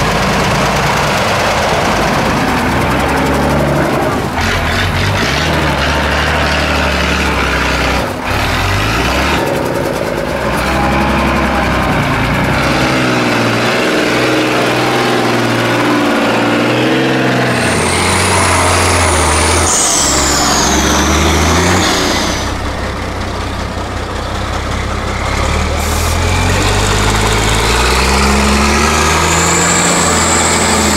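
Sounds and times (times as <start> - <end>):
diesel engine revving: 0.0 - 30.9.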